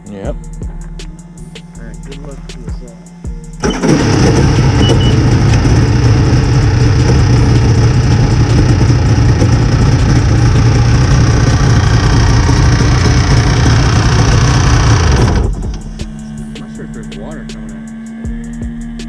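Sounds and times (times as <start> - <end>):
watercraft engine starting and running: 3.0 - 18.2.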